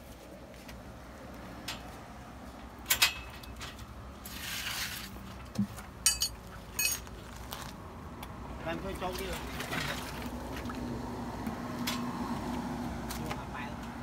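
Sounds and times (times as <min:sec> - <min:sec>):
spanners clinking on metal: 0:06.0 - 0:07.1.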